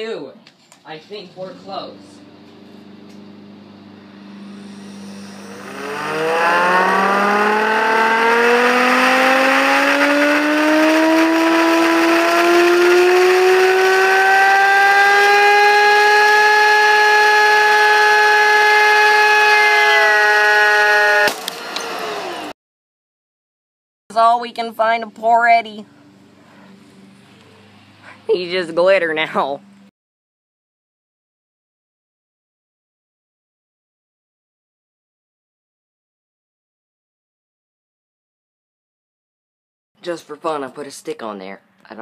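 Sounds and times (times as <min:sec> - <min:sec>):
vacuum motor whining: 0:01.6 - 0:22.5
disc bursting with sharp crack: 0:21.2 - 0:21.8.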